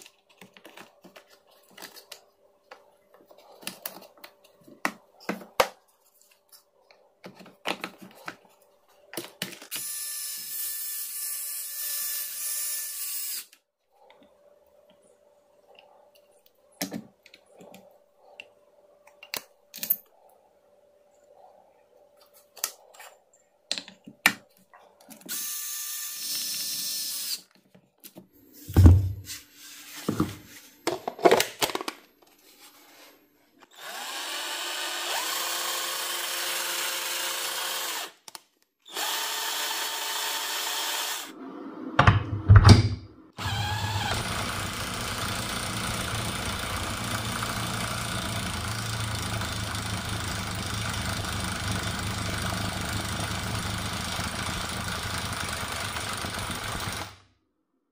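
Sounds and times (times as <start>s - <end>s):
impact wrench running: 43.4s - 57.2s.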